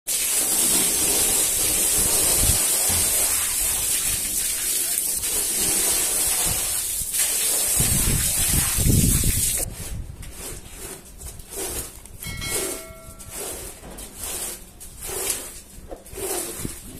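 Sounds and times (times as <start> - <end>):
water jet spraying onto rug: 0.1 - 9.7
squeegee scraping wet rug: 0.1 - 16.9.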